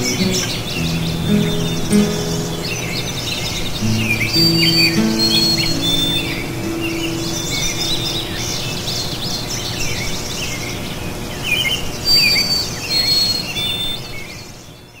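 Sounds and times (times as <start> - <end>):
high bird whistles: 0.0 - 8.7
songbirds chirping: 0.0 - 15.0.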